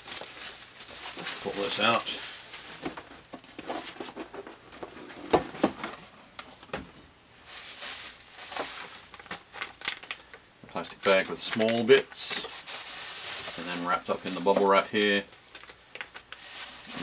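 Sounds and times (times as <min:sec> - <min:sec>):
bubble wrap rustling: 0:00.0 - 0:06.2, 0:07.4 - 0:17.0.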